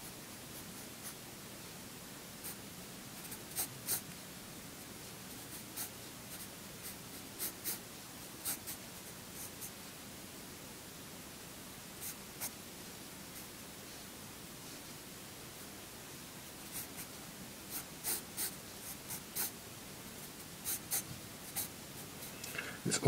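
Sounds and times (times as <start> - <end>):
pencil scratching on paper: 17.7 - 19.5, 20.6 - 21.7.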